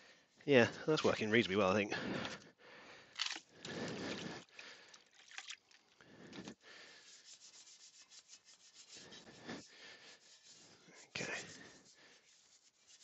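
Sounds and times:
wheel brush scrubbing wheel: 7.0s - 13.0s.

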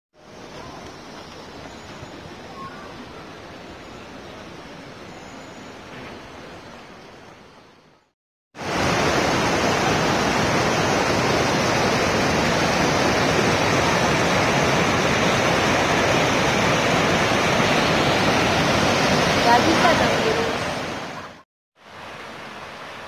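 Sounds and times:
fast stream tumbling over rocks: 8.6s - 23.0s.

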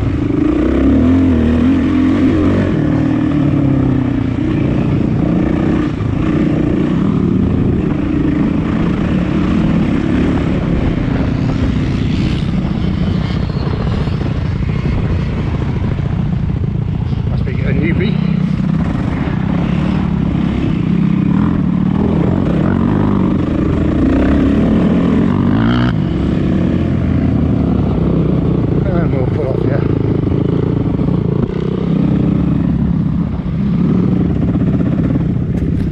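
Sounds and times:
motorcycle engine revving: 0.0s - 35.9s.

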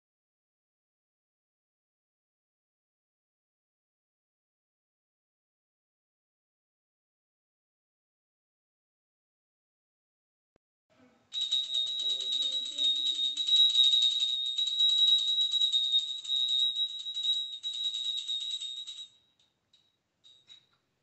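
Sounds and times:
hand bell ringing rapidly: 11.3s - 19.2s.

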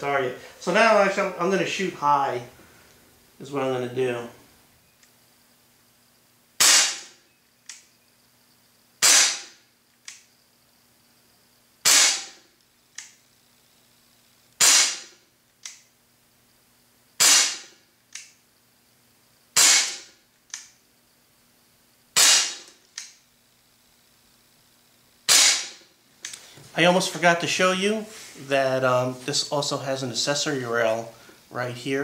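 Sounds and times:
pellet pistol shot crack: 6.6s - 7.2s, 14.6s - 15.1s, 22.2s - 22.7s, 25.3s - 25.8s.

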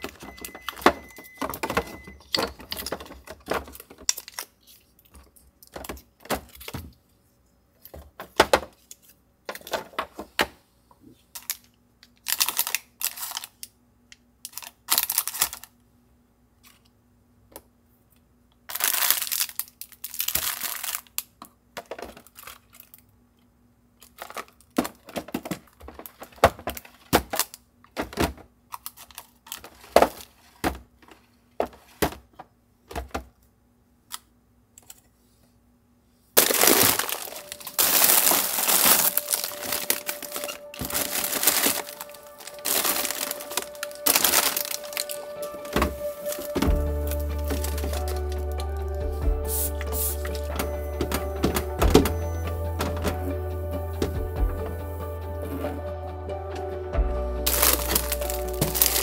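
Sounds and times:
plastic containers clicking and knocking: 0.0s - 4.3s, 5.1s - 6.9s, 7.9s - 8.8s, 9.5s - 10.6s, 21.8s - 22.4s, 24.1s - 28.5s, 57.5s - 59.0s
plastic bags crinkling: 0.0s - 5.0s, 11.3s - 13.7s, 14.5s - 15.8s, 18.7s - 21.3s, 22.0s - 23.0s, 24.0s - 27.6s, 28.8s - 30.4s, 36.4s - 48.8s, 57.5s - 59.0s.

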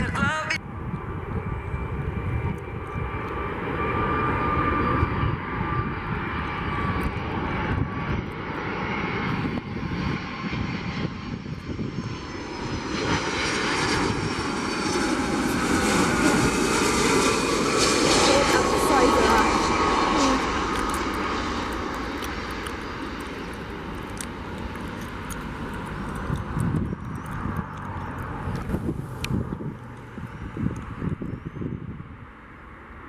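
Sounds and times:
jet engines rumbling and whining: 0.0s - 33.0s.

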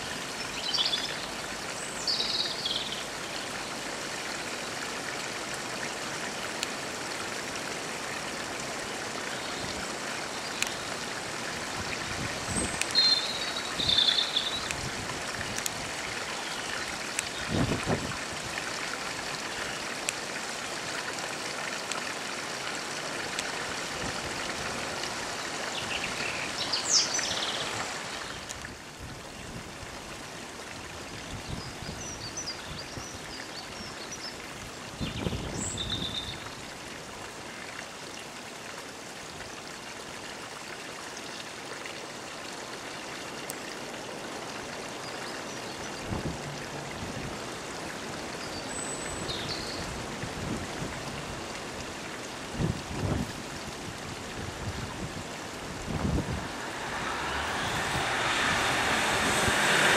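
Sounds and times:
train rushing past: 56.2s - 59.9s.

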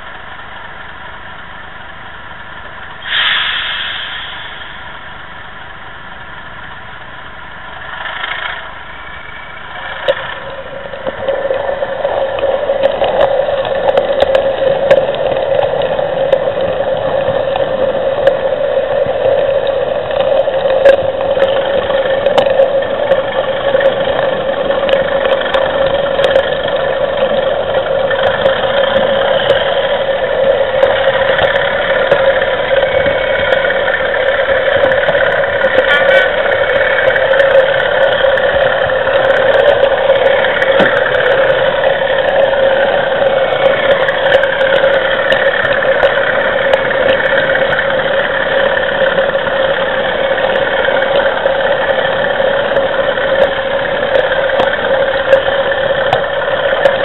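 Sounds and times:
diesel engine drone from small speaker: 0.0s - 57.0s.

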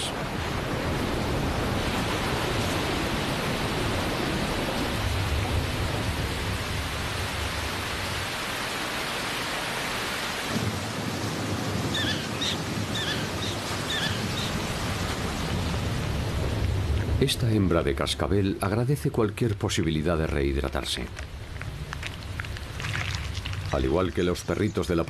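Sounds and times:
thunder rumbling: 0.0s - 8.3s, 10.5s - 18.7s
heavy rain: 0.0s - 25.0s.

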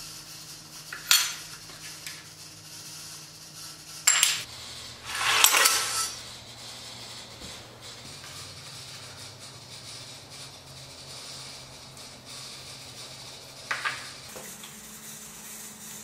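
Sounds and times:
metal scraping and rattling on wood: 4.1s - 6.2s.

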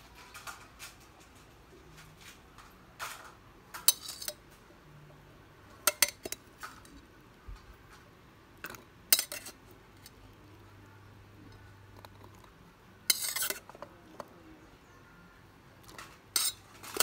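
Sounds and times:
metal spoon clinking against bowls: 3.8s - 4.4s, 5.8s - 7.0s, 8.6s - 10.2s, 13.1s - 13.9s, 15.8s - 17.0s.

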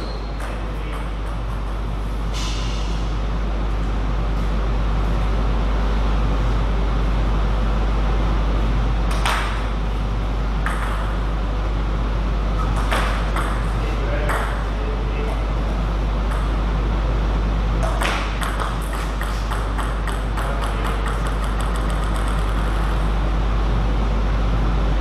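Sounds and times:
low electrical hum and hiss: 0.0s - 25.0s
table tennis ball bouncing: 0.4s - 1.9s, 10.6s - 11.2s, 12.6s - 14.6s, 16.3s - 16.6s, 17.8s - 22.9s.

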